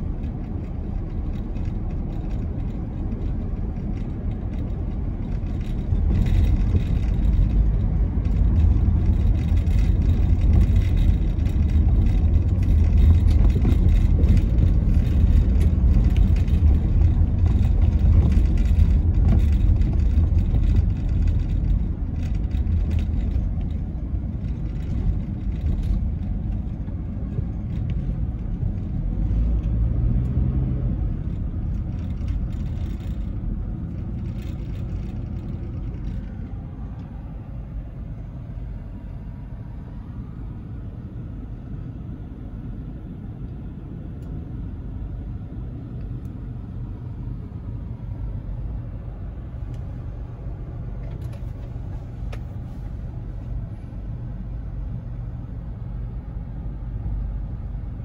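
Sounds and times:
car tyres and engine rumble: 0.0s - 58.0s.

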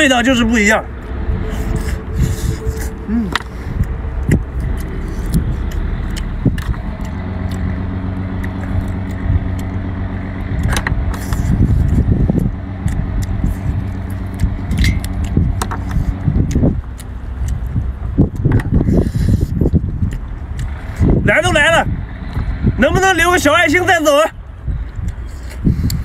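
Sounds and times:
steady low rumble: 0.0s - 26.0s
slurping: 1.4s - 7.8s
chewing: 1.5s - 21.2s, 24.8s - 26.0s.

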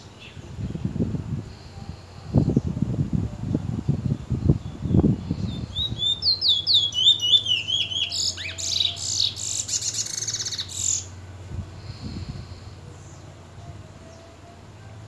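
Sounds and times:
bullfinch singing whistled notes: 4.6s - 11.1s.

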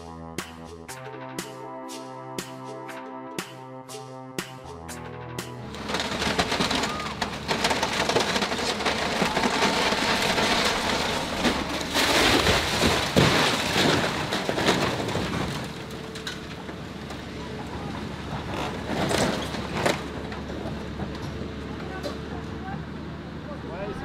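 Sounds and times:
wood cracking and splintering: 5.6s - 20.7s
debris clattering: 5.6s - 20.8s.

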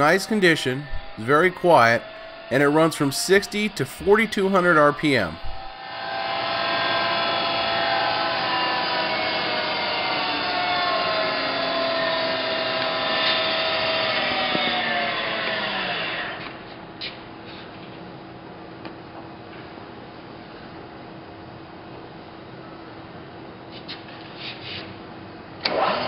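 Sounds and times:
milling machine whine: 0.0s - 16.4s.

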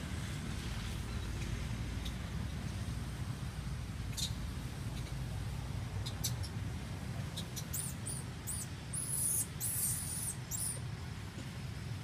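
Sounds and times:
infant monkey squealing: 7.6s - 10.8s.

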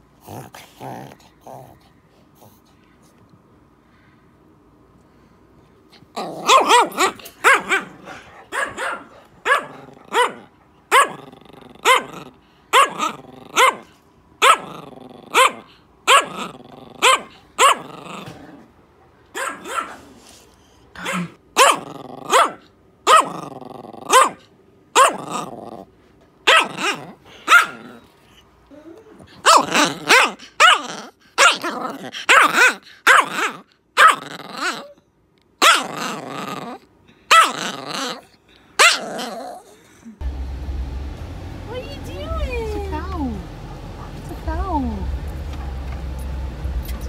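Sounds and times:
dog growling: 0.2s - 2.7s, 5.9s - 8.4s, 9.6s - 13.9s, 14.5s - 18.7s, 21.0s - 24.3s, 25.0s - 25.9s, 26.6s - 35.0s, 35.6s - 40.2s
dog barking: 6.4s - 11.2s, 11.8s - 14.7s, 15.3s - 17.9s, 19.3s - 20.2s, 21.0s - 23.4s, 24.1s - 25.3s, 26.5s - 28.0s, 29.4s - 34.2s, 35.6s - 35.9s, 37.3s - 37.6s, 38.8s - 39.1s.

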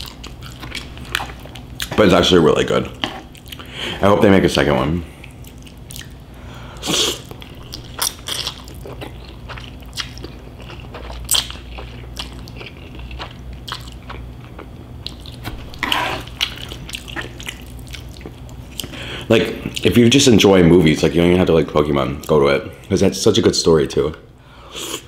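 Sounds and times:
wet chewing and mouth clicks: 3.0s - 3.7s, 5.2s - 6.2s, 7.2s - 19.0s.

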